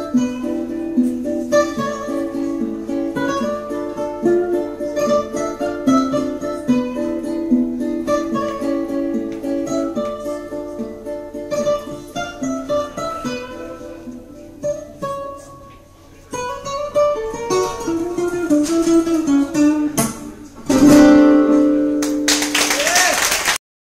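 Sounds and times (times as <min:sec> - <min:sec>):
cuatro plucked notes: 0:00.0 - 0:22.5
loud strummed chord: 0:16.7 - 0:22.5.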